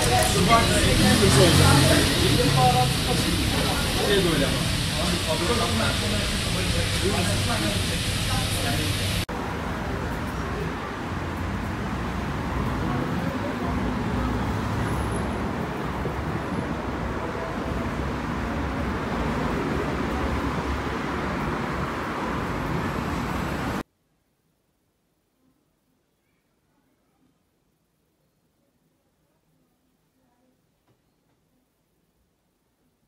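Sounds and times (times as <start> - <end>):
road traffic rumble: 0.0 - 23.8.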